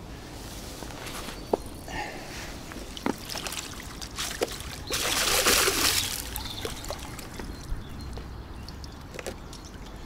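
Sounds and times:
water pouring from landing net: 3.1 - 7.4.

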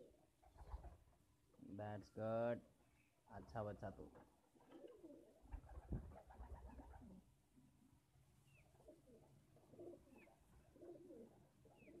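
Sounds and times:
pigeons cooing: 4.6 - 7.2, 8.8 - 12.0.

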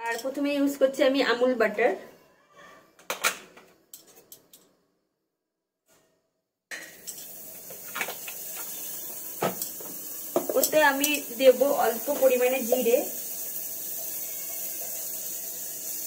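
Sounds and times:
butter sizzling: 6.9 - 16.0
metal spoon knocking on pot: 9.4 - 10.8.

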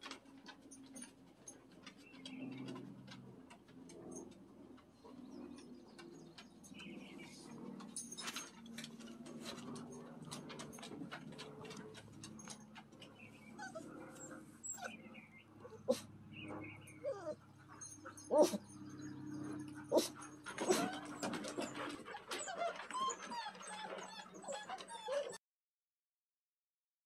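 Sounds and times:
steady low hum: 0.0 - 22.1
puppies whimpering and yipping: 6.9 - 25.4.

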